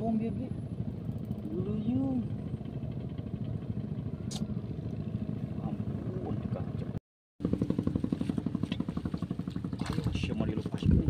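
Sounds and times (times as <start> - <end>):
small engine running: 0.1 - 11.0.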